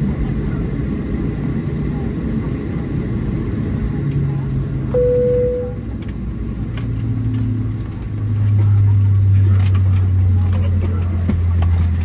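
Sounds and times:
airplane cabin rumble: 0.0 - 12.0
low hum: 4.9 - 10.0.

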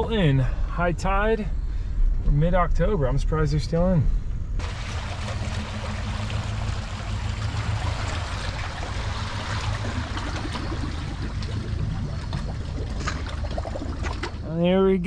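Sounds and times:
engine idling hum: 0.0 - 15.0
water washing and trickling: 4.6 - 14.5.

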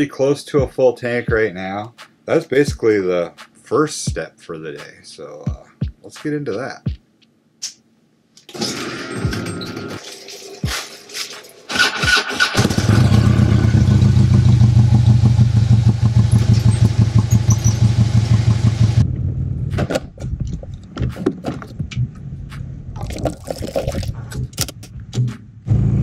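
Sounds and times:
motorcycle engine starting and running: 11.7 - 20.0, 25.6 - 26.0.

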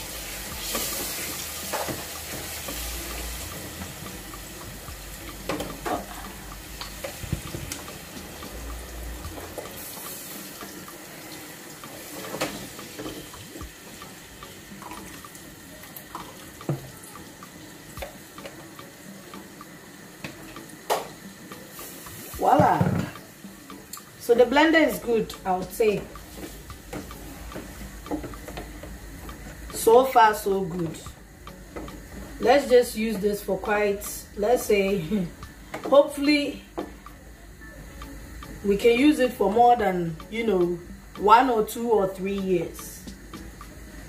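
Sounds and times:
knocks against pot: 22.5 - 23.2.

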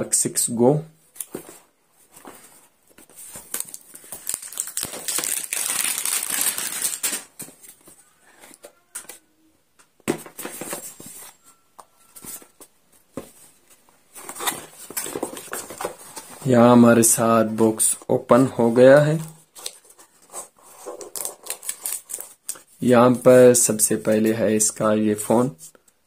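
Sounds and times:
packaging crinkling and tearing: 3.5 - 7.4, 20.8 - 22.7.

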